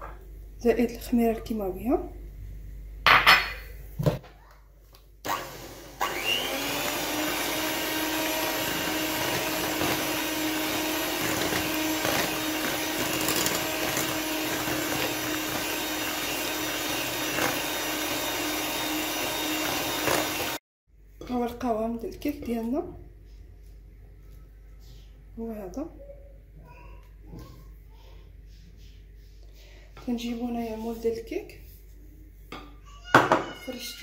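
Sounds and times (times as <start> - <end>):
electric hand mixer whisking: 5.3 - 20.6.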